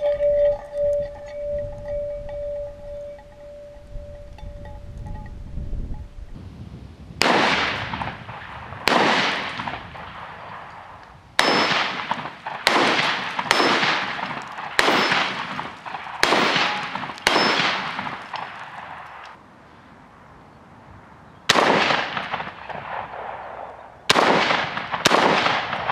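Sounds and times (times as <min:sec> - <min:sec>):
shotgun shots: 0:07.2 - 0:19.2, 0:21.5 - 0:25.9
pellets ringing off steel targets: 0:08.9 - 0:19.2.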